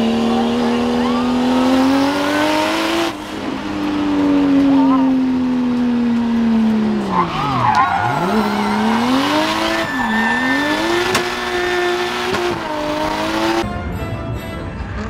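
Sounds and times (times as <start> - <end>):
car engine revving: 0.0 - 13.7
distant car on track: 0.0 - 15.0
tires squealing: 0.2 - 3.6, 6.7 - 13.6.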